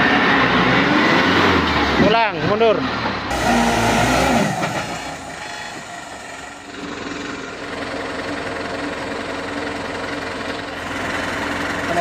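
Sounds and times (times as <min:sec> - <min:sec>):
truck diesel engine idling: 0:03.2 - 0:12.0.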